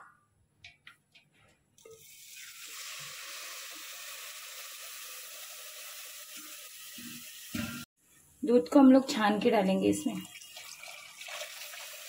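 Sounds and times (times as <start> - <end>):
milk pouring through strainer: 10.3 - 12.0.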